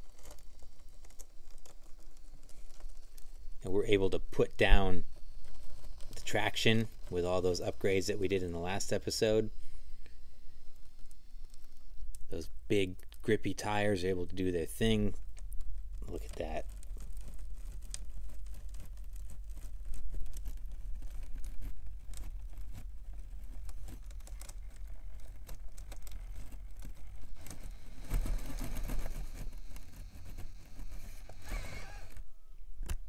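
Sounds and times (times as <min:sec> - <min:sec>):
tires clicking and scraping on rock: 0:00.0 - 0:32.3
toy car motor humming: 0:27.3 - 0:32.3.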